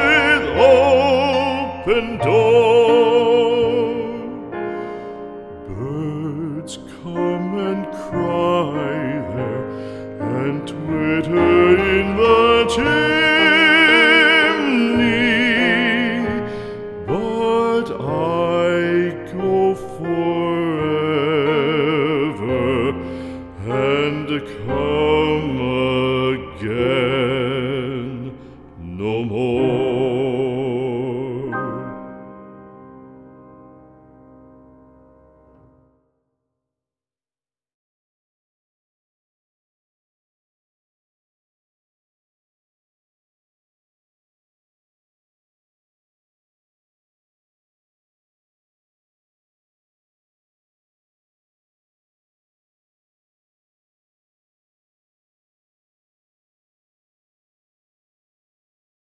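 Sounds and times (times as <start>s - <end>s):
singer holding long notes: 0.0s - 4.6s, 10.2s - 32.1s
slow soundtrack music: 0.0s - 35.9s
piano accompaniment: 0.0s - 36.2s.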